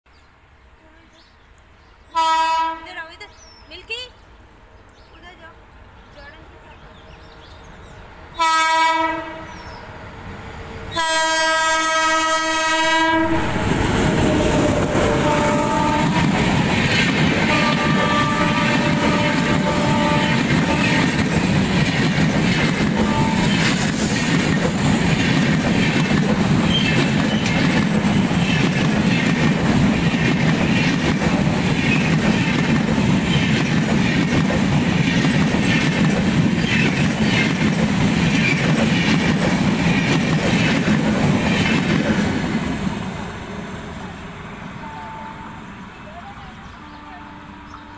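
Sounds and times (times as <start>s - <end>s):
train coaches rumbling past: 2.1s - 47.9s
locomotive horn blasts: 2.2s - 3.0s, 8.4s - 9.5s, 10.9s - 14.5s, 15.1s - 16.4s, 17.4s - 21.2s, 23.0s - 23.6s, 44.8s - 45.6s, 46.8s - 47.9s
wheels clacking over rail joints: 13.6s - 42.4s.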